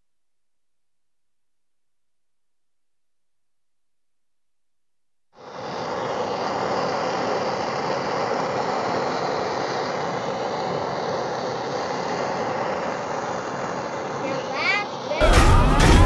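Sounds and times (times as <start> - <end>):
blowtorch flame hissing: 5.4 - 16.0.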